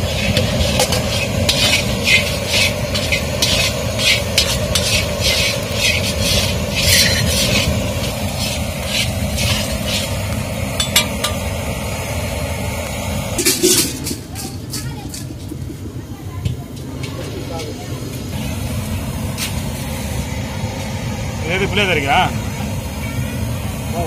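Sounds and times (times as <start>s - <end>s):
metal spatula scraping seeds in pan: 0.0s - 10.2s
steady low rumble: 0.0s - 24.0s.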